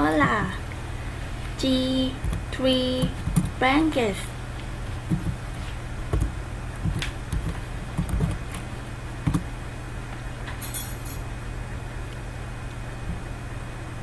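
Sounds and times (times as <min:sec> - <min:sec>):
low electrical hum: 0:00.0 - 0:14.0
keyboard keystrokes: 0:02.2 - 0:03.6, 0:06.1 - 0:09.5.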